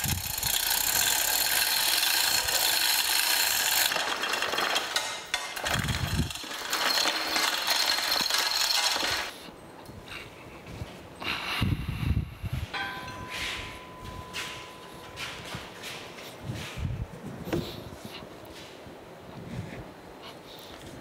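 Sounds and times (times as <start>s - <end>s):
metal grating on stone plate: 0.6s - 9.3s.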